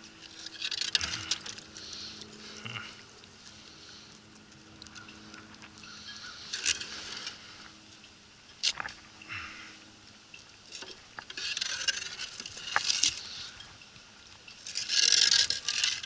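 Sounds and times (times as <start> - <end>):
metal scraping and rustling: 0.0 - 4.1, 4.8 - 8.0, 10.6 - 13.8, 14.4 - 16.0.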